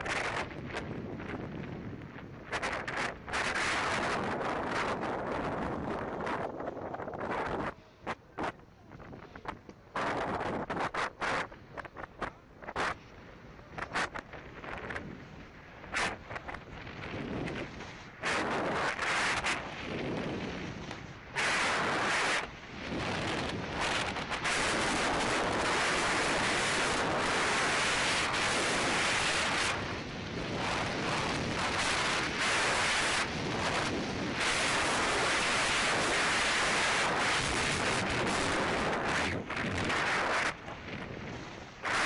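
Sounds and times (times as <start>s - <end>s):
wind buffeting microphone: 0.0s - 42.0s
skis scraping over snow: 10.0s - 42.0s.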